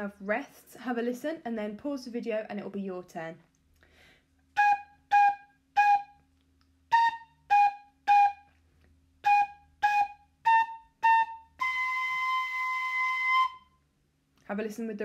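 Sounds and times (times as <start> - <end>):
recorder playing melody: 4.6 - 6.2, 6.9 - 8.5, 9.2 - 13.7.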